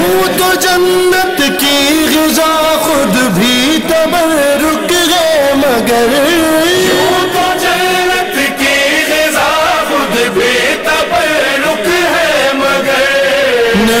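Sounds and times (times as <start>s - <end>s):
man singing devotional song: 0.0s - 14.0s
voices chanting: 6.3s - 13.9s.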